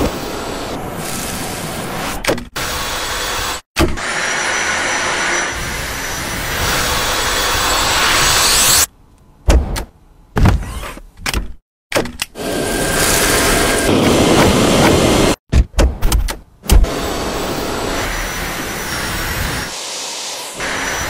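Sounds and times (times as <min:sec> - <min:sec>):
vacuum cleaner running: 0:12.4 - 0:15.4, 0:16.8 - 0:21.0.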